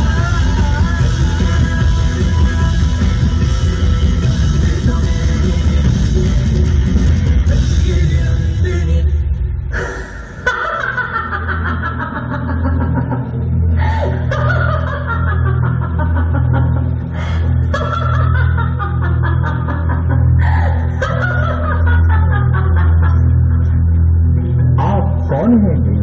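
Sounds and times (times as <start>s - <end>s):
deep sustained drone: 0.0s - 26.0s.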